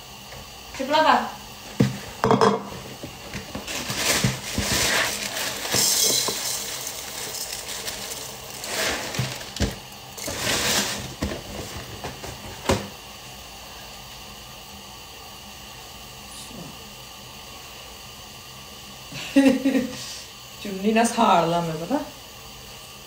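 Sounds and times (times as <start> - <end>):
plastic bag rustling: 2.7 - 12.8
cereal pouring into plastic bowl: 3.6 - 11.7.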